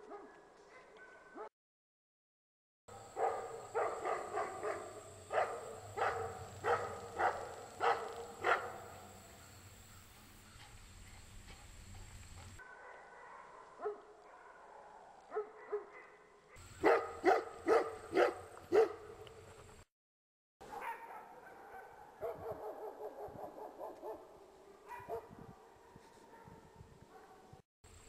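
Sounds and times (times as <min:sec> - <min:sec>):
dog barking: 0:00.0 - 0:01.5, 0:02.9 - 0:09.1, 0:12.6 - 0:19.2, 0:20.6 - 0:27.6.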